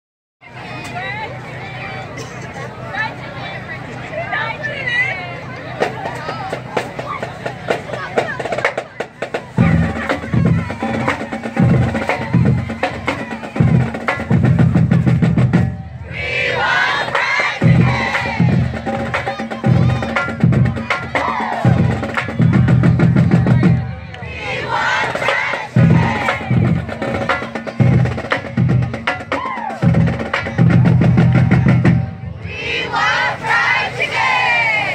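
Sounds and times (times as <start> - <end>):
marching band playing: 3.0 - 34.9
drums hitting: 5.8 - 32.6.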